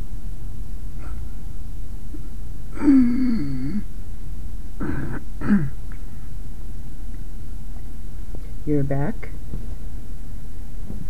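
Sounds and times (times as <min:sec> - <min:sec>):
steady low hum: 0:00.0 - 0:11.0
woman's wordless voice: 0:08.5 - 0:09.4.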